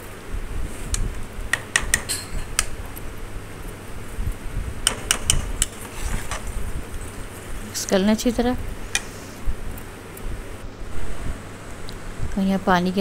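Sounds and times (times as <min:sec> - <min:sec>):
ladle clinking on pot: 0:02.0 - 0:02.6
low steady rumble: 0:02.3 - 0:13.0.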